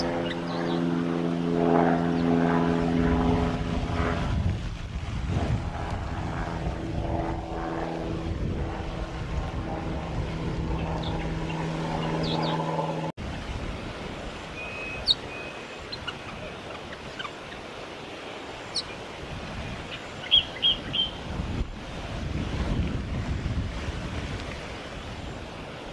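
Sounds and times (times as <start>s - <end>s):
engine drone: 0.0s - 13.2s
wind: 0.0s - 25.9s.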